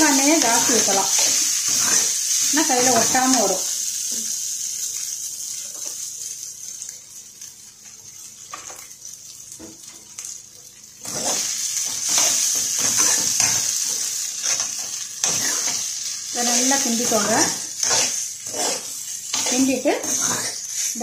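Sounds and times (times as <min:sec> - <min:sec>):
metal spoon scraping a pan: 0:00.0 - 0:03.5, 0:11.0 - 0:21.0
rice sizzling in a pan: 0:00.0 - 0:21.0.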